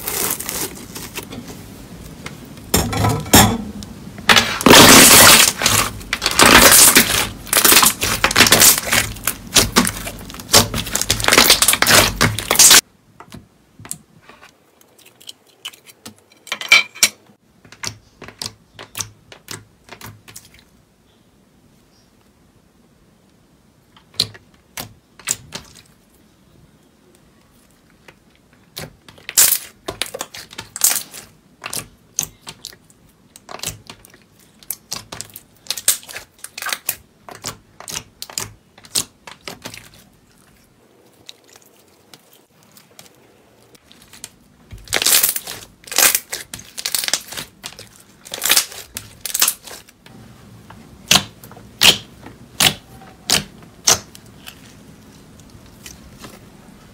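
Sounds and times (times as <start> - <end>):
slime squished by hand: 4.6 - 12.8, 51.0 - 56.6.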